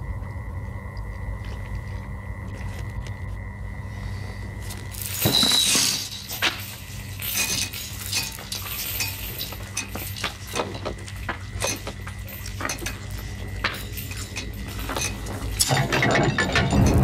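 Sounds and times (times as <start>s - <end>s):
steady low hum: 0.0s - 17.0s
small metallic clinks: 4.9s - 17.0s.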